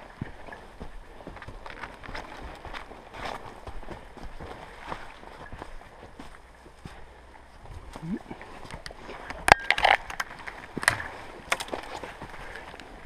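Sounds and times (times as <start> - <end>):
footsteps crunching on leaf litter: 1.2 - 7.2
twigs and branches snapping: 8.7 - 12.9.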